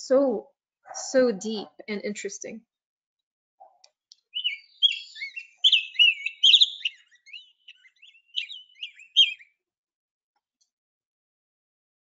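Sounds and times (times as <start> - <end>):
bird singing whistled notes: 4.2 - 9.6.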